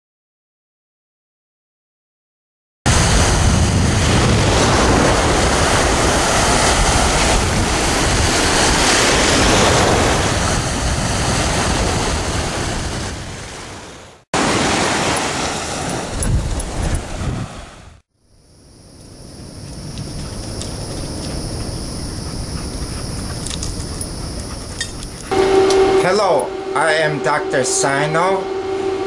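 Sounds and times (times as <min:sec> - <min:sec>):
ocean surf washing in: 0:02.9 - 0:18.0
wind rumbling on microphone: 0:02.9 - 0:18.0, 0:19.0 - 0:26.0.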